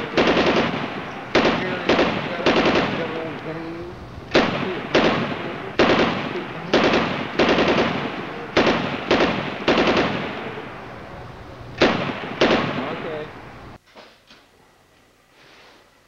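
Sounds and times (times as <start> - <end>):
cap gun shots: 0.0 - 3.4, 4.3 - 10.7, 11.8 - 13.3.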